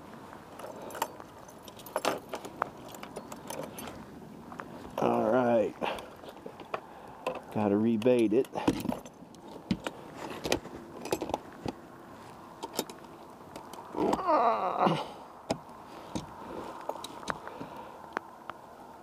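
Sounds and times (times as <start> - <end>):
metal trap clicking and rattling: 0.6 - 3.9
falling groan-like voice: 13.9 - 15.3.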